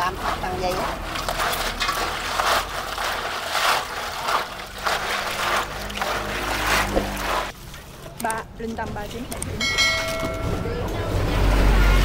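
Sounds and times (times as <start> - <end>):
snail shells grinding and clattering: 0.0 - 7.6
water sloshing in basin: 0.0 - 9.1.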